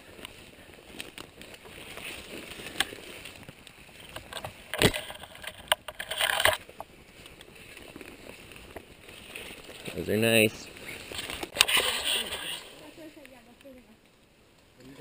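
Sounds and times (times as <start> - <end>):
twigs and brush rustling: 0.0 - 15.0
short scrape: 11.0 - 12.8.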